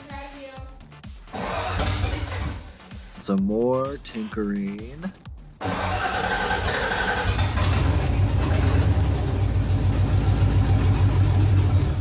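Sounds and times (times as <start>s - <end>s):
engine starting and running: 1.3s - 2.8s, 5.6s - 12.0s.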